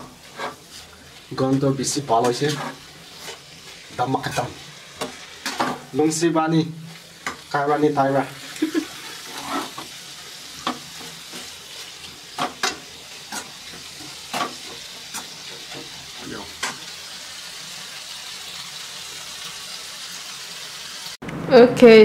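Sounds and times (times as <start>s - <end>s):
metal spatula scraping a pan: 0.0s - 6.0s, 8.8s - 16.9s
food sizzling in a frying pan: 0.0s - 21.2s.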